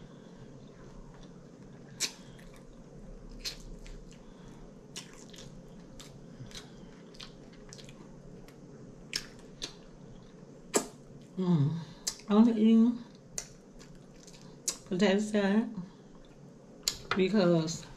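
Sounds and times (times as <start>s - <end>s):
wet chewing and lip-smacking: 1.1s - 11.0s, 13.3s - 14.9s.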